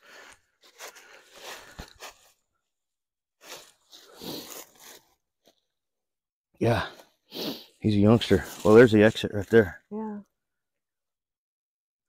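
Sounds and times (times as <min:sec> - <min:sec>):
footsteps crunching through dry leaves: 0:00.2 - 0:02.4, 0:03.4 - 0:05.2
leaves rustling: 0:03.4 - 0:05.2.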